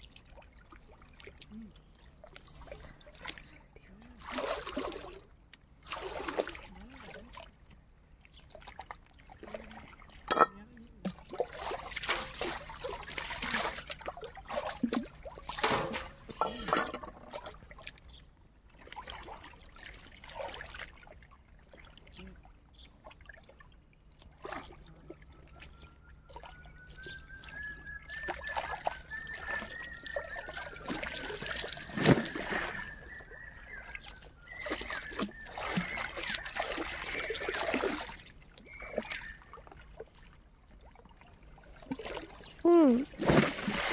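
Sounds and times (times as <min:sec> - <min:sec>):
water splashing and sloshing: 0:00.0 - 0:43.9
wet clothes slapping: 0:43.2 - 0:43.9.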